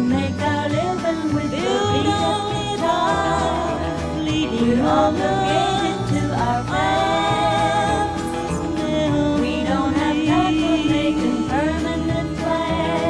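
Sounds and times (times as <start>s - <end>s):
country song: 0.0s - 13.0s.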